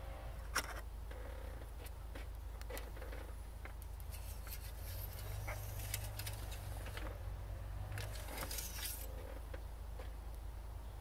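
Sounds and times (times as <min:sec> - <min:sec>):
dipstick clicks and scrapes: 0:01.7 - 0:07.1, 0:08.0 - 0:10.1.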